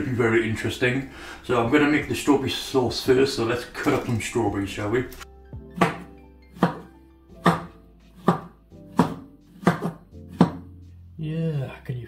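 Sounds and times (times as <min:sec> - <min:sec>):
quiet background music: 0:00.0 - 0:12.0
knife chopping on worktop: 0:05.6 - 0:10.8.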